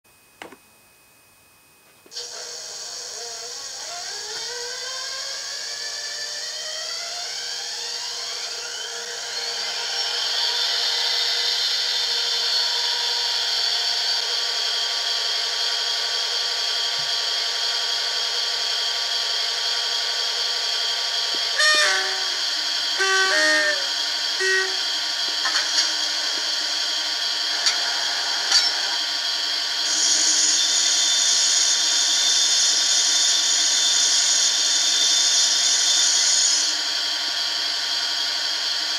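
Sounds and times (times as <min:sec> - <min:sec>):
model train diesel engine sound: 0:02.1 - 0:38.9
short horn blasts: 0:21.4 - 0:25.0.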